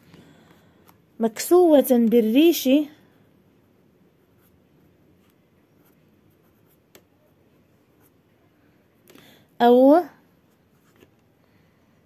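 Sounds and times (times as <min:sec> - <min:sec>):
pen scratching on paper: 0:04.2 - 0:04.6, 0:05.2 - 0:07.3.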